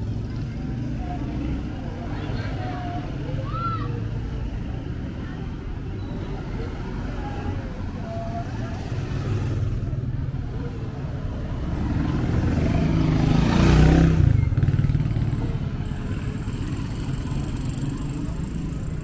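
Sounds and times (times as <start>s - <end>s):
road noise rushing: 0.0s - 19.0s
vehicle engine passing by: 11.4s - 19.0s.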